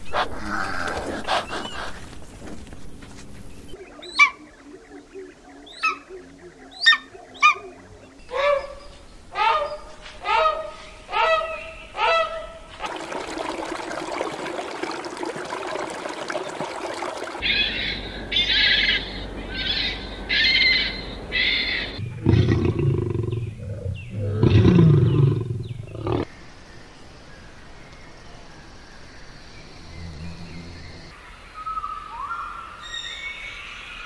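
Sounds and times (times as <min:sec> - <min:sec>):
harsh high bird calls: 0:16.8 - 0:22.5.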